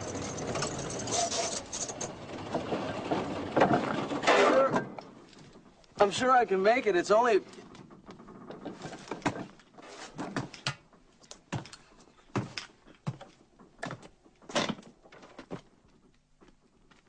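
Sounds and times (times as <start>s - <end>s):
irregular knocks and thuds: 7.6s - 16.6s.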